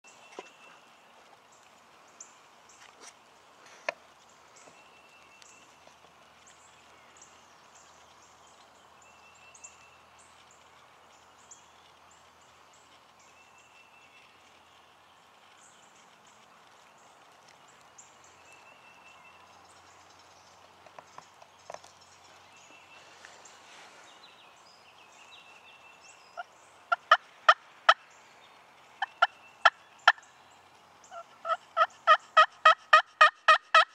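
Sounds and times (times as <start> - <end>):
wild turkey calling: 26.2 - 28.3, 28.9 - 30.4, 31.0 - 33.9.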